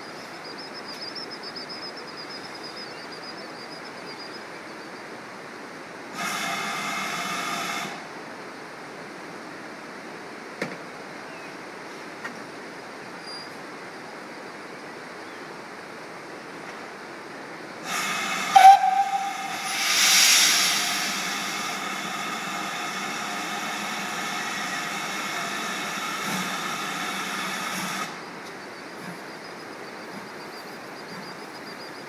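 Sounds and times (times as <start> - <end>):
hiss of steam: 6.0 - 8.5, 17.8 - 31.4
steam whistle blast: 6.2 - 8.0, 17.9 - 28.1.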